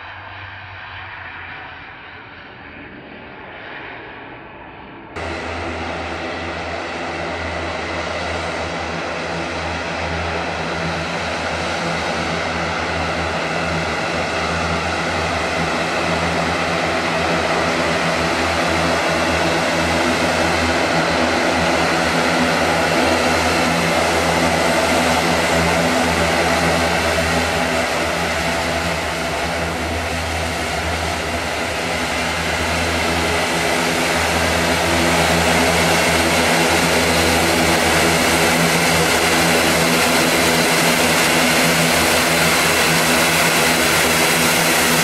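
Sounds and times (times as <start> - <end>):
turboprop engines running: 0.0 - 45.0.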